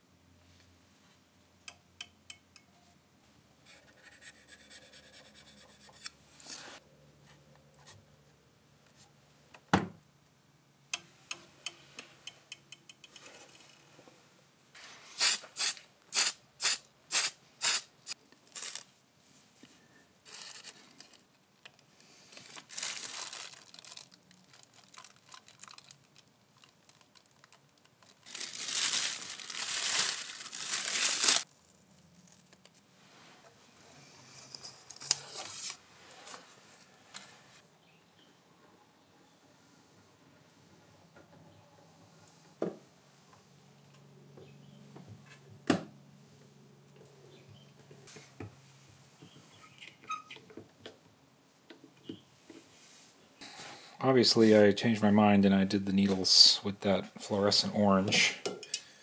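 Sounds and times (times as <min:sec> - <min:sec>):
spray-paint can hissing: 0:15.2 - 0:17.9
masking tape tearing and peeling: 0:15.2 - 0:18.9, 0:22.4 - 0:31.6
crinkling and clicks: 0:20.3 - 0:32.8.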